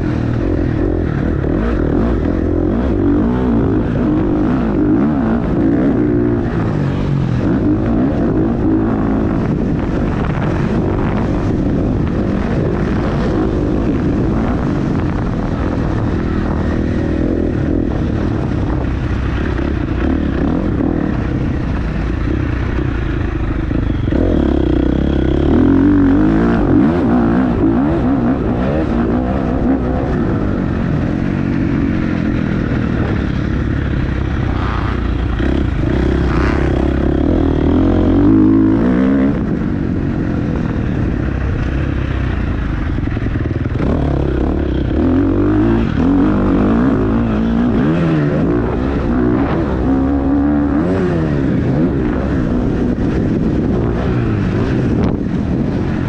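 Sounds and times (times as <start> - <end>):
small engine revving: 34.4 - 39.6.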